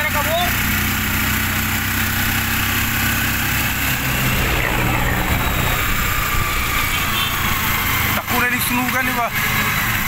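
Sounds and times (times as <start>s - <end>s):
road and wind noise: 0.0s - 10.0s
vehicle engine running: 0.0s - 10.0s.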